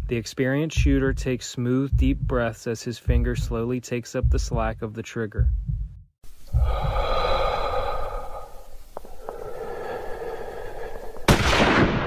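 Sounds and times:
person breathing out deeply: 6.4s - 11.3s.

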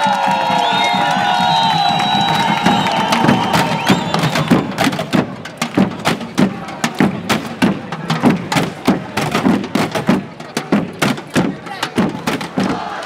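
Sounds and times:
sticks drumming on plastic containers: 2.8s - 12.8s.

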